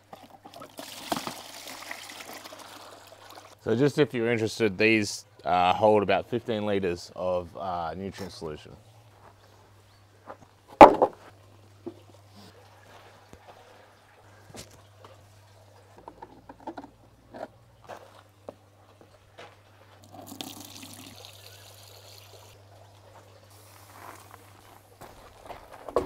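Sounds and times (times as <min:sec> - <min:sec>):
plastic buckets clattering: 0:00.1 - 0:02.3
water pouring: 0:00.2 - 0:03.6, 0:20.0 - 0:22.6.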